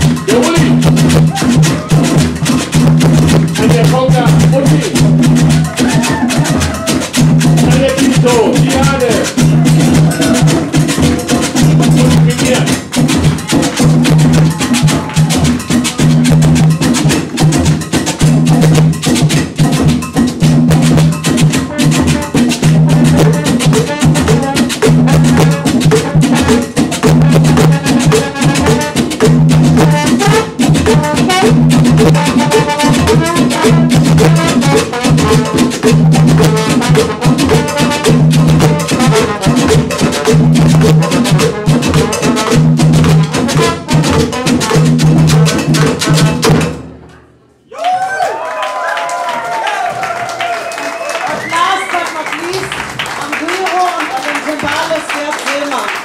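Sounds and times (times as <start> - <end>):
trombone line: 0.0 - 17.1, 20.7 - 46.7
low repeating riff: 0.0 - 17.6
hand drums: 0.0 - 47.1, 49.4 - 56.0
congas: 0.0 - 56.0.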